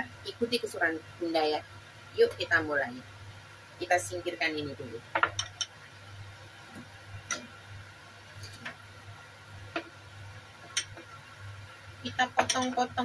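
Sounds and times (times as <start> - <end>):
ceramic bowls clicking on wood: 5.1 - 5.8, 10.7 - 11.1, 12.3 - 12.9.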